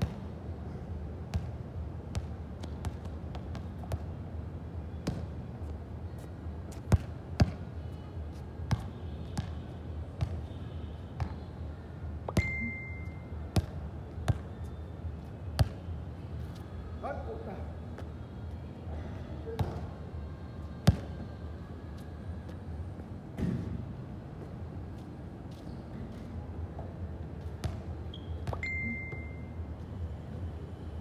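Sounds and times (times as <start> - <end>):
short high beep: 12.4 - 13.2, 28.5 - 29.5.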